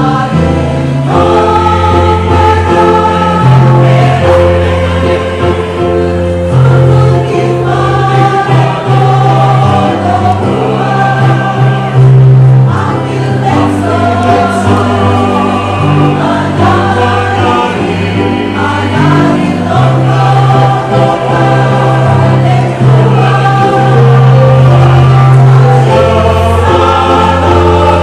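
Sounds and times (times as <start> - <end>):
choir singing in parts: 0.0 - 28.0.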